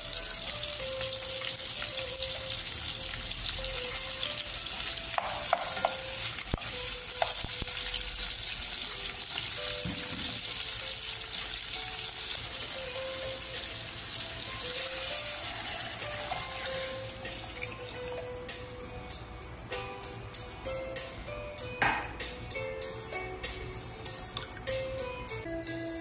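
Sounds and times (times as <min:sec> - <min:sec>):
onions and tomatoes sizzling in pot: 0:00.0 - 0:18.8.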